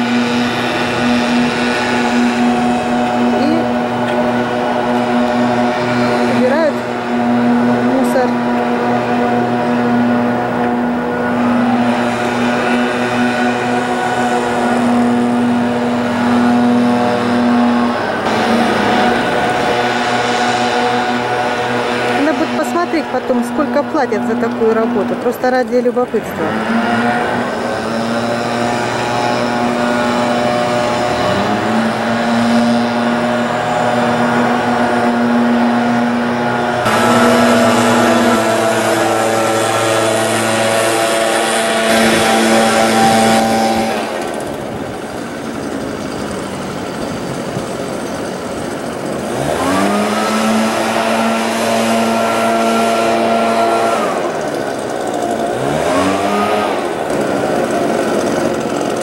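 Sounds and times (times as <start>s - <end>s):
leaf blower engine revving: 0.0s - 59.0s.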